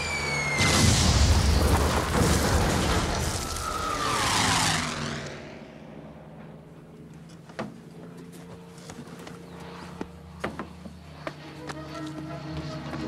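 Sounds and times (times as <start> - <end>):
explosion rumble with debris: 0.6 - 4.1
fighter plane passing overhead: 1.9 - 13.0.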